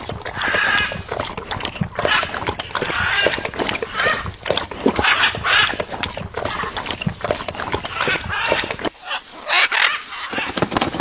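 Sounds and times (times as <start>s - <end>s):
macaw squawking: 7.9s - 10.6s.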